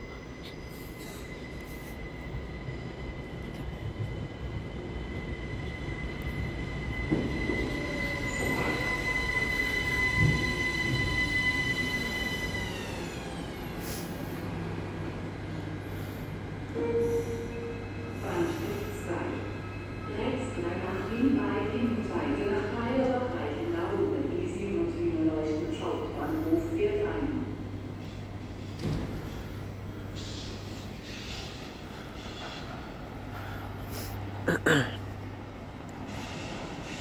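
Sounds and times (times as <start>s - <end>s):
train braking to a stop: 0.0s - 22.1s, 27.8s - 34.0s, 36.0s - 37.0s.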